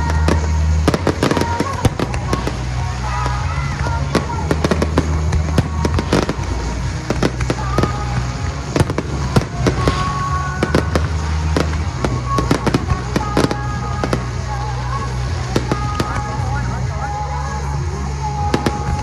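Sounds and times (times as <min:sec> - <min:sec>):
fireworks bangs and crackles: 0:00.0 - 0:19.0.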